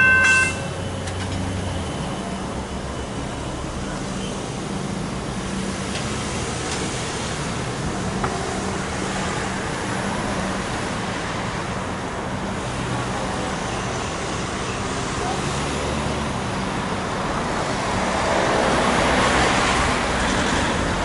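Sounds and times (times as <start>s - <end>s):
cars driving past: 12.5s - 21.0s.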